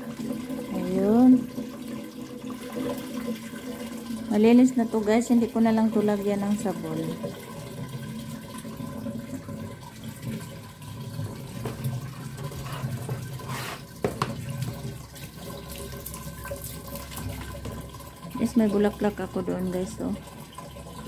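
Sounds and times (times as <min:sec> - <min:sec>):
water splashing into plastic basin: 0:06.6 - 0:21.0.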